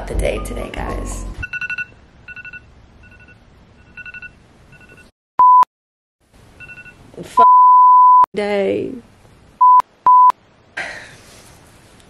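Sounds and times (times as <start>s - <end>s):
censor bleeps: 1.4s - 5.7s, 6.6s - 8.3s, 9.6s - 10.4s
phone tone chirping beeps: 1.4s - 5.7s, 6.6s - 8.3s, 9.6s - 10.3s.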